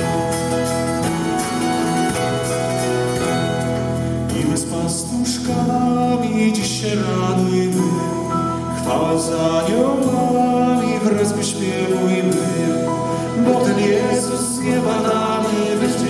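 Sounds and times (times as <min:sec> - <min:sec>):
band with guitars and keyboard: 0:00.0 - 0:16.0
men singing: 0:04.3 - 0:16.0.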